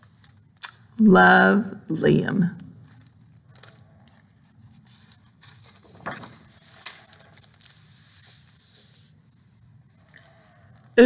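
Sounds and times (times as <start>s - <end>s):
book pages rustling: 2.8s - 10.8s.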